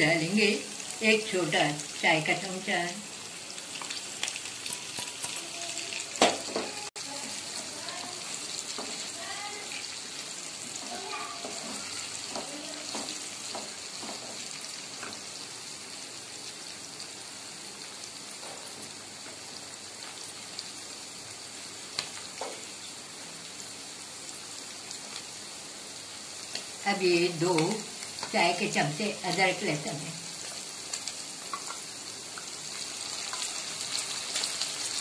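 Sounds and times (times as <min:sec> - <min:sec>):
meat sizzling in oil: 0:00.0 - 0:35.0.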